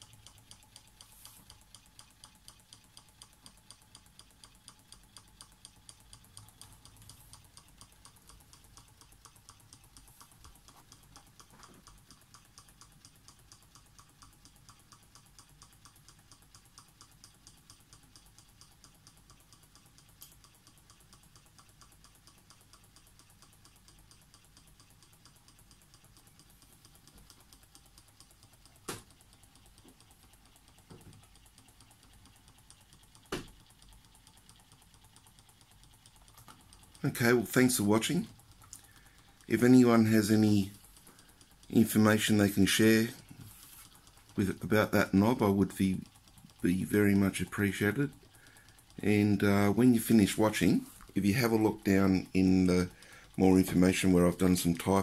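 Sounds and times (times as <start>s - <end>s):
hot-air engine rapid clicking: 0.0s - 55.0s.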